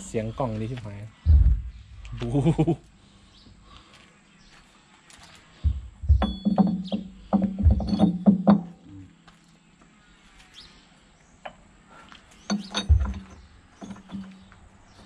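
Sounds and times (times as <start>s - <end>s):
metallic clanks and dull knocks: 5.6s - 9.1s, 12.4s - 14.6s.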